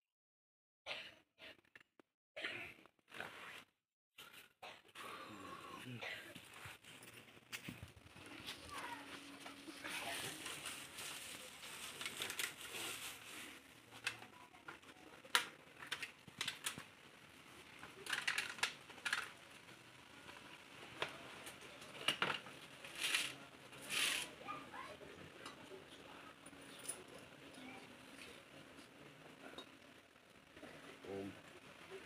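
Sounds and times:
paper and plastic packets crinkling: 9.6s - 14.3s, 17.8s - 19.5s
small items clicking and knocking: 14.0s - 24.3s.

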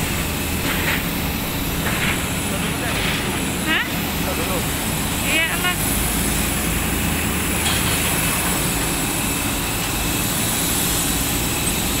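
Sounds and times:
jet turbines roaring: 0.0s - 12.0s.

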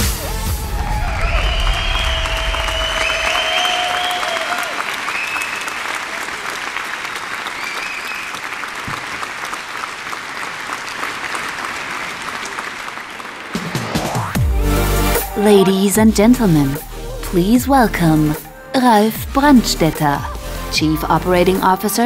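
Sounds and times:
audience applauding: 0.0s - 15.8s.

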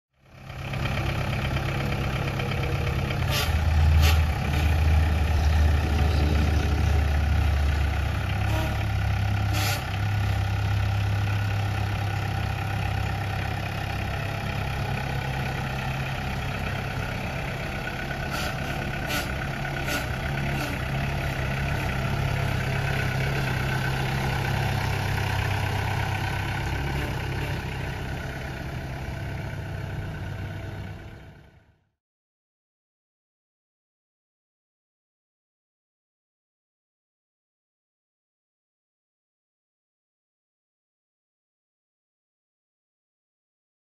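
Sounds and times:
tractor diesel engine running: 0.2s - 31.9s.

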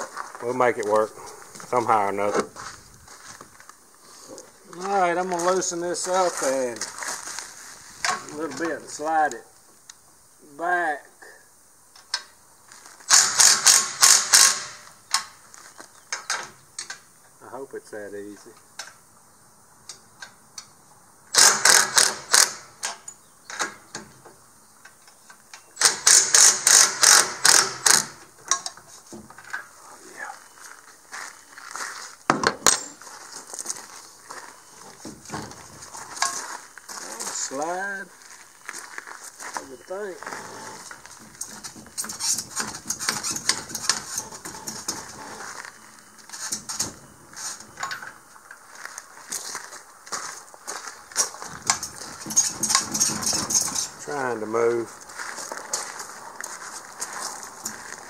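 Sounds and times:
metal winch stand clanking and rattling: 40.4s - 45.4s, 51.4s - 54.0s.

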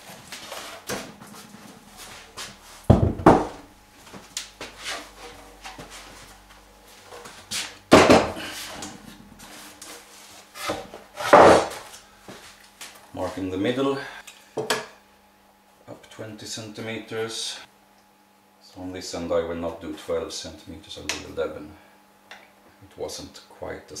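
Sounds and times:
wooden board knocking on workbench: 2.9s - 3.6s.

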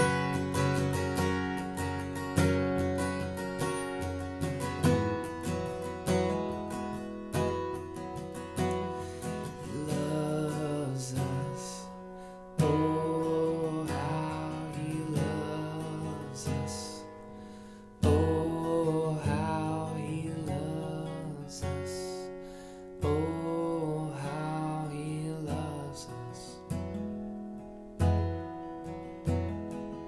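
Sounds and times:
acoustic guitar strumming: 0.0s - 30.0s
man singing softly: 9.2s - 17.3s, 18.0s - 22.4s, 23.0s - 26.9s.

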